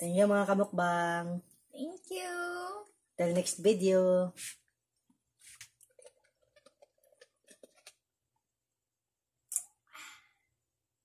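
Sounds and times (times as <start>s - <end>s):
people sipping through straws: 5.5s - 8.1s.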